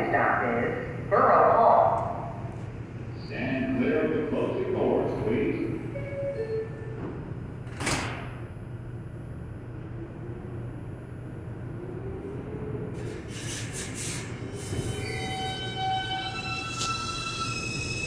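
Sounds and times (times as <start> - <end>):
stopped train humming: 0.0 - 18.0
train doors shutting: 5.8 - 8.6, 12.8 - 18.0
train propulsion tones: 9.6 - 18.0.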